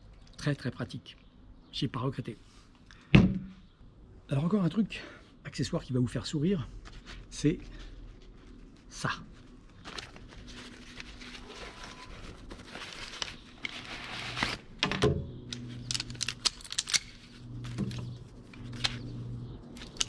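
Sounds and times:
fabric pouch rustling: 7.9s - 14.6s.

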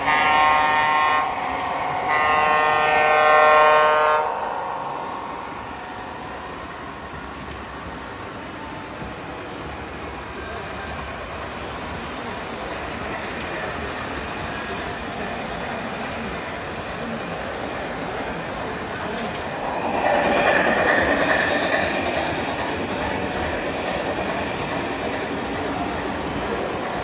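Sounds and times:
model locomotive horn blasts: 0.0s - 4.7s
model freight cars rolling: 6.7s - 27.0s.

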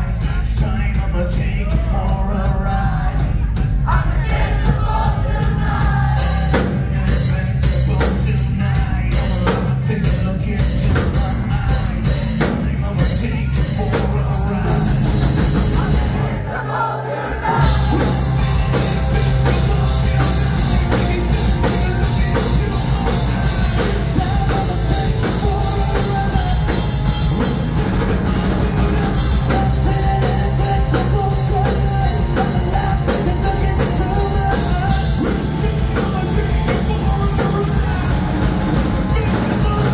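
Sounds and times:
bass guitar: 0.0s - 39.9s
drum kit: 0.0s - 39.9s
man singing: 0.0s - 39.9s
distorted electric guitar: 17.4s - 39.9s.

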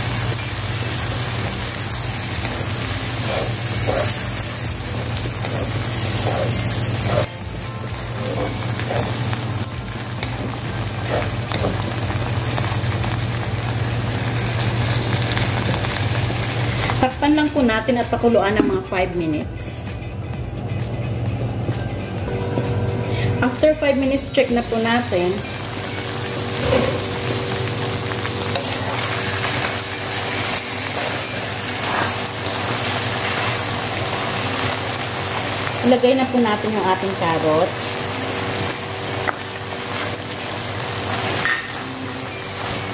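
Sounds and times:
meat sizzling in a wok: 0.0s - 17.2s, 24.5s - 42.9s.

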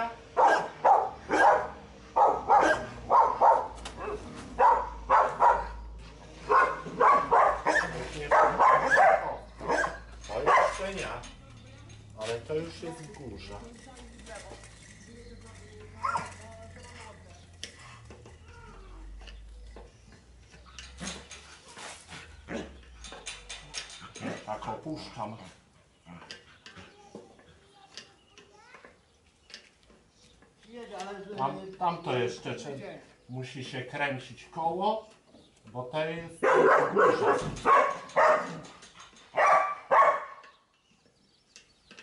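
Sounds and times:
dog barking: 0.4s - 5.8s, 6.5s - 10.8s, 36.4s - 38.6s, 39.4s - 40.4s.

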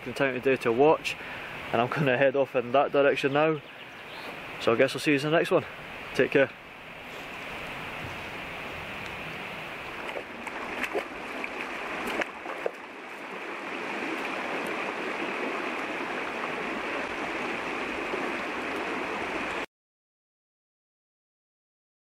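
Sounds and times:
shallow river over stones: 3.1s - 19.7s.

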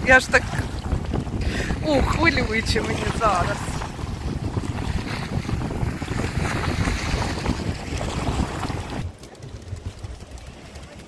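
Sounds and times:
sea waves breaking on rocks: 0.0s - 11.0s
wind buffeting microphone: 0.0s - 11.0s.

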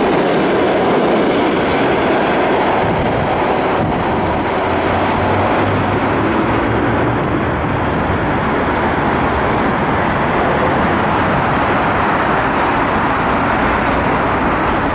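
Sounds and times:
train wheels rolling on rails: 0.0s - 14.9s.

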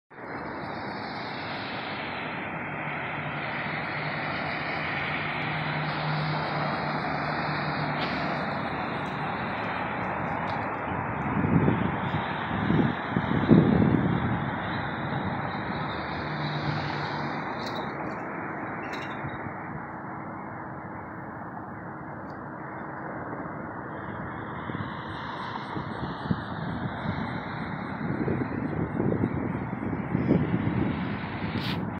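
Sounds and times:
roadside traffic noise: 0.1s - 31.9s
car passing by: 0.2s - 31.9s
approaching vehicle hiss: 30.8s - 31.9s.

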